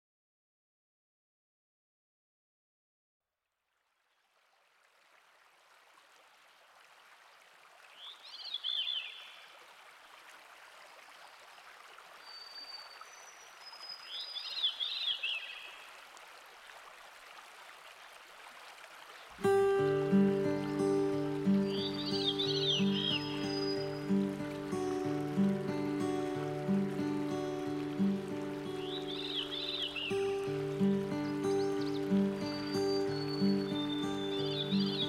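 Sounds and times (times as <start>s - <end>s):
river water rushing over cascade: 5.0s - 35.0s
bird chirping: 8.0s - 9.4s, 12.2s - 15.8s, 20.1s - 24.3s, 28.8s - 35.0s.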